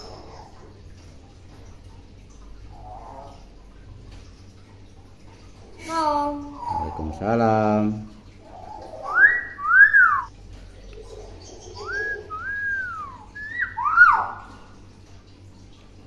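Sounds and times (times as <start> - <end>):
bird whistling: 8.6 - 10.3, 11.7 - 14.5.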